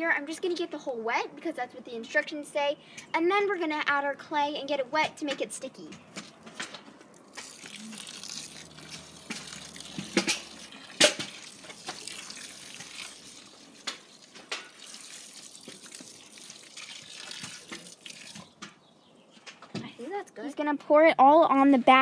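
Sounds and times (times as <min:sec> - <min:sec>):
water pouring into soil: 0:07.1 - 0:18.6.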